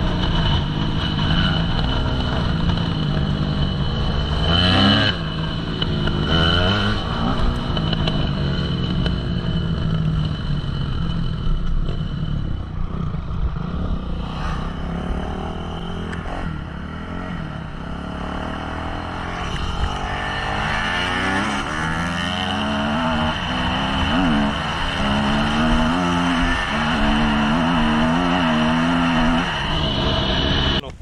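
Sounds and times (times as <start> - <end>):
dirt bike engines revving: 0.0 - 31.0.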